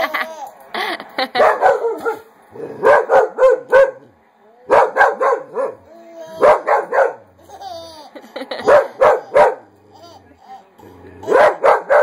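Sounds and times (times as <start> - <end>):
baby laughing: 0.0 - 1.5, 7.4 - 11.7.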